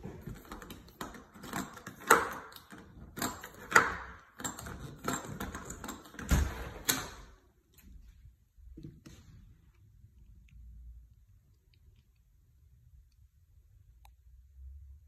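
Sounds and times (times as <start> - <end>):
sharp clicks and knocks: 0.0 - 7.2.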